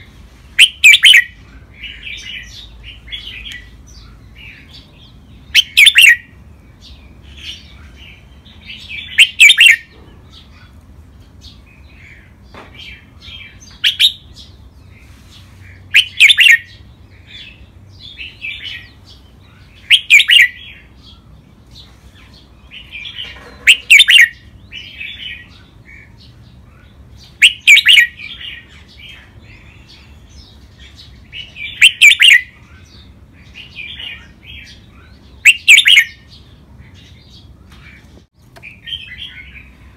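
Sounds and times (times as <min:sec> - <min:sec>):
soft bird chirps: 0:00.0 - 0:39.9
bird singing short phrases: 0:00.6 - 0:10.4, 0:22.8 - 0:26.1, 0:26.8 - 0:36.4.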